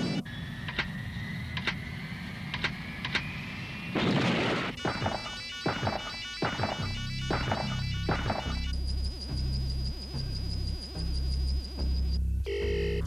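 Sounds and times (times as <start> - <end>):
quick falling whines: 0.0 - 8.8
electronic drone: 0.0 - 13.0
rapid beeping: 4.7 - 13.0.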